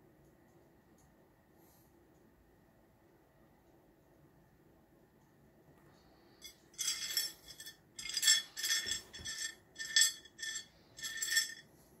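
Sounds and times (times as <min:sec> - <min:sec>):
stones clinking on ceramic plate: 0:06.8 - 0:11.6.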